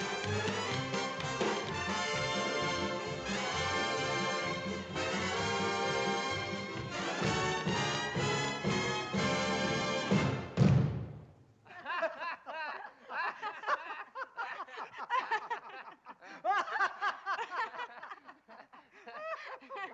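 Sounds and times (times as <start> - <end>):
orchestral chord: 0.0 - 10.6
people laughing: 11.7 - 19.9.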